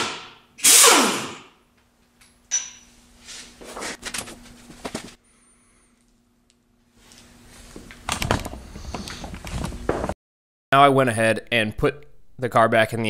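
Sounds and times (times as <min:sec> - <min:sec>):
pneumatic impact wrench: 0:00.0 - 0:01.6.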